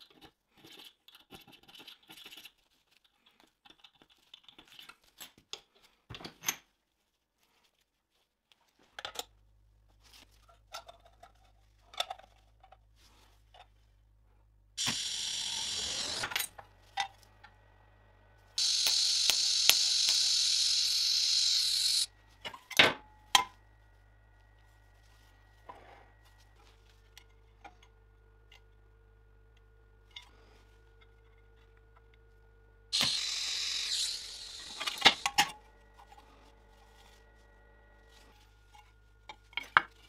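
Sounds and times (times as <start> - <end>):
welding arc hissing: 14.8 - 16.6, 18.6 - 22.1, 33.0 - 35.5
welding machine low hum: 14.8 - 22.6, 23.2 - 39.5.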